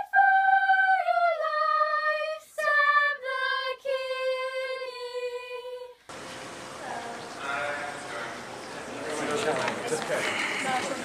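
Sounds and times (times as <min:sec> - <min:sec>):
children's choir singing: 0:00.0 - 0:09.1.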